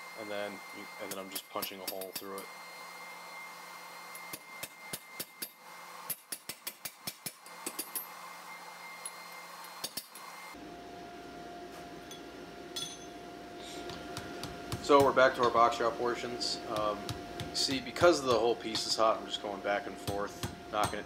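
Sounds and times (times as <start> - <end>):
hammer striking metal punch: 20.0 - 21.0.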